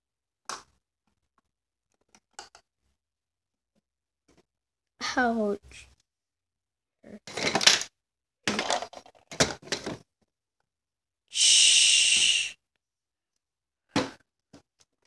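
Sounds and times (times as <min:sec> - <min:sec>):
plastic toys rustling and knocking: 0:00.4 - 0:02.7, 0:04.3 - 0:04.5, 0:07.2 - 0:10.3.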